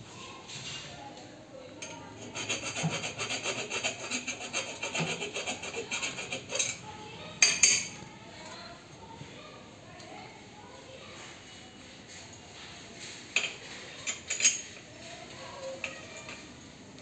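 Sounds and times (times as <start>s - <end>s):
hand tool scraping copper pipe: 2.2s - 6.8s.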